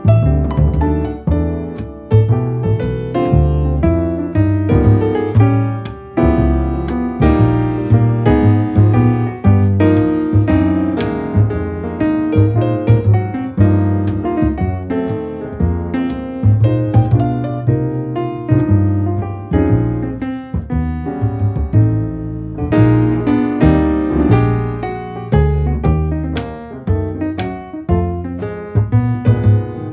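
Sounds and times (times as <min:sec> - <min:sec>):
piano music: 0:00.0 - 0:29.9.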